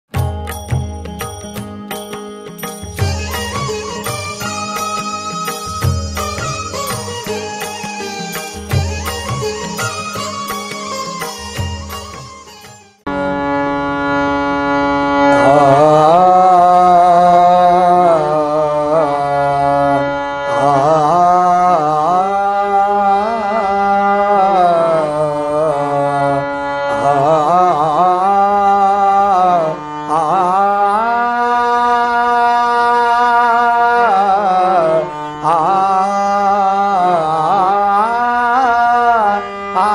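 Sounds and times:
harmonium drone: 0.2 - 39.9
man singing devotional song: 15.2 - 39.9.

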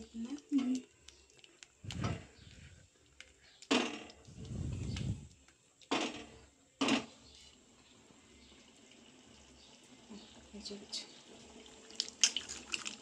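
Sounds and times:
low rumble: 1.8 - 2.9, 4.3 - 5.4.

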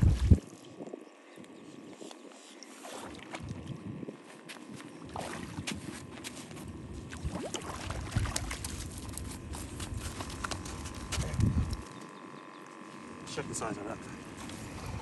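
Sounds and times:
wind rumbling on microphone: 0.0 - 1.2, 3.0 - 4.4, 5.0 - 11.9, 14.6 - 15.0
fish flopping on sand: 4.5 - 11.4
fish splashing in water: 7.1 - 9.0.

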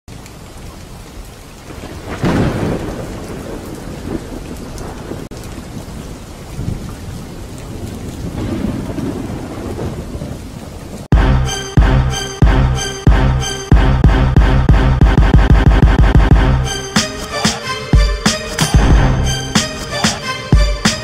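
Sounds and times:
steady rain: 0.1 - 11.1, 16.4 - 21.0
thunder rumbling: 1.7 - 11.4, 18.8 - 20.7.

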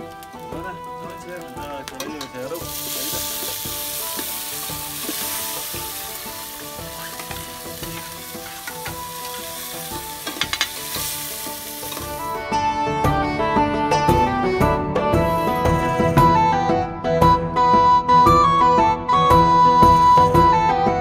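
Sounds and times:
tomatoes sizzling in hot oil: 0.0 - 12.4.

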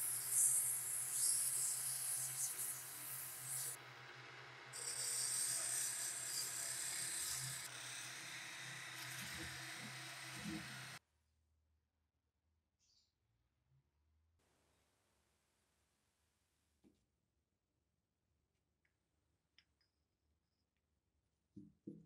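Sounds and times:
wood lathe motor humming: 0.0 - 11.0
hacksaw cutting turning wood: 4.8 - 11.0.

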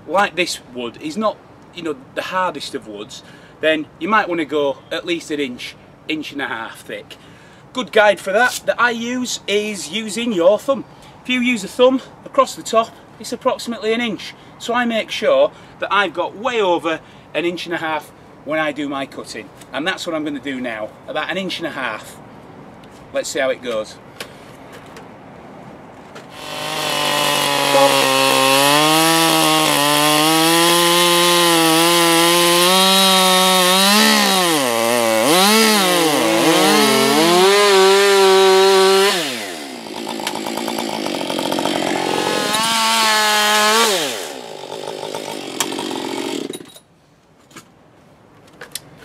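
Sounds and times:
chainsaw cutting wood: 26.3 - 46.8.

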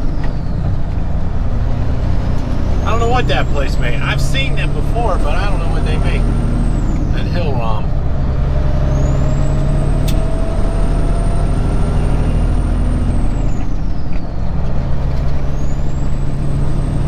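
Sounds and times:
diesel engine running: 0.0 - 17.0
road noise: 0.0 - 17.0
sharp click: 10.0 - 10.2.

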